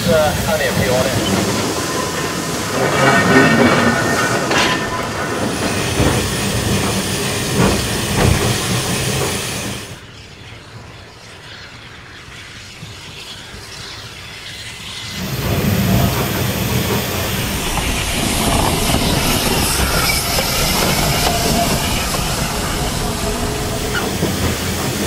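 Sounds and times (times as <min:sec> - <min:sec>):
steam hiss: 0:00.0 - 0:25.0
steam locomotive chuffing: 0:00.0 - 0:25.0.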